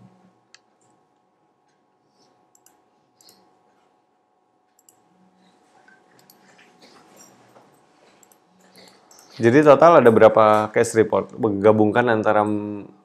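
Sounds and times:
faint steady hum: 0.0 - 13.0
faint clicks: 0.5 - 3.5.

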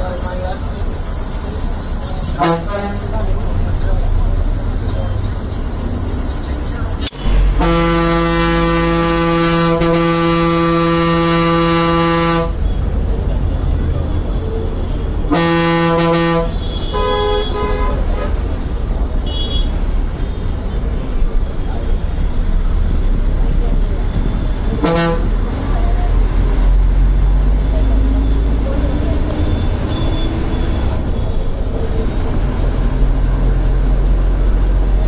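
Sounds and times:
bus engine running: 0.0 - 35.0
deep vehicle horn: 2.4 - 3.2, 7.1 - 12.6, 15.2 - 18.4, 24.7 - 25.6
higher-pitched traffic horns: 7.1 - 12.7, 15.2 - 18.3, 19.2 - 19.8, 24.8 - 25.4.

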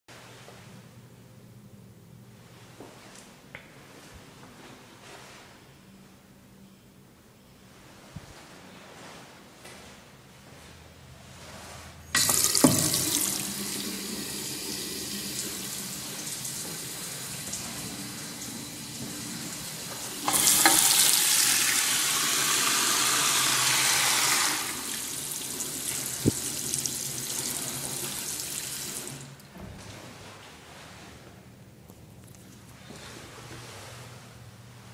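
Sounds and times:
faucet water splashing in sink: 12.2 - 18.8, 20.2 - 29.2.

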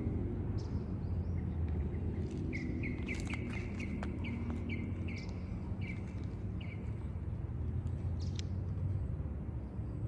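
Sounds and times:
bird chirping: 0.5 - 8.5.

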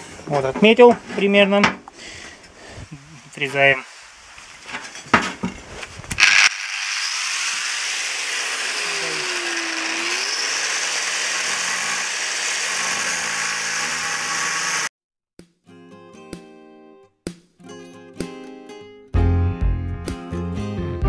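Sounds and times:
angle grinder cutting steel: 6.2 - 14.9
acoustic guitar music: 15.6 - 20.6.

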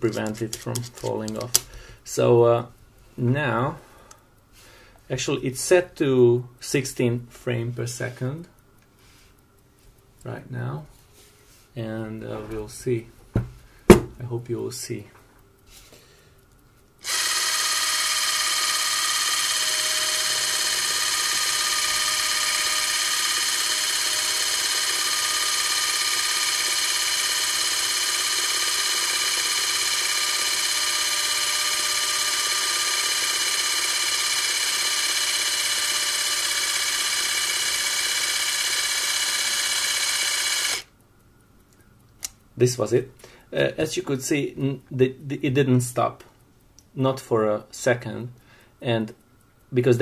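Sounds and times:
clockwork camera whirring: 0.0 - 1.7, 17.0 - 41.2.

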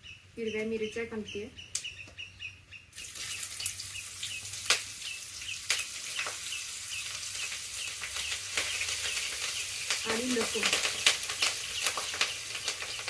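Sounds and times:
bird chirping: 0.0 - 13.0
spices popping: 2.9 - 13.0
chillies sizzling in hot oil: 3.0 - 13.0.

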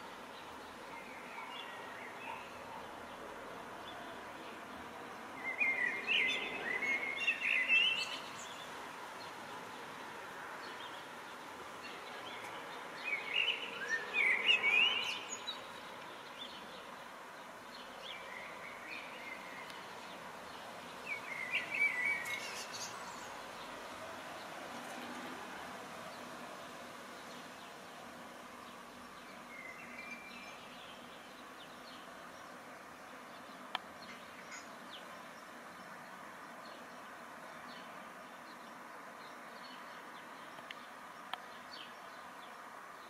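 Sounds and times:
songbirds twittering: 0.0 - 43.0.

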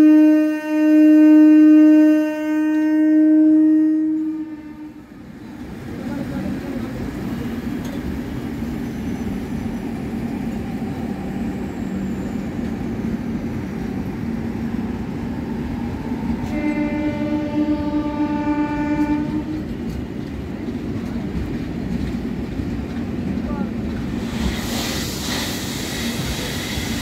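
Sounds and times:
train horn: 0.0 - 5.2, 16.4 - 19.7
train wheels rumbling on track: 0.0 - 27.0.

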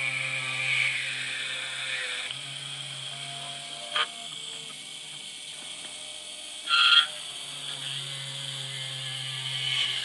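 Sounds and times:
drill cutting into metal: 0.0 - 10.0
short loud squeal: 6.7 - 7.2.

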